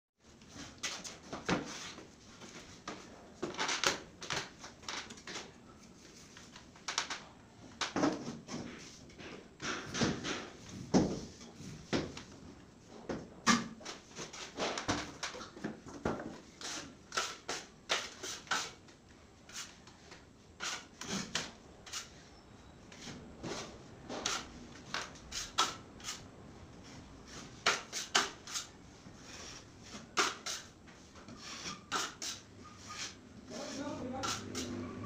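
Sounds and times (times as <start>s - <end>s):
putty knife scraping compound: 16.6s - 18.8s, 19.5s - 19.9s, 20.6s - 26.3s, 27.2s - 34.8s.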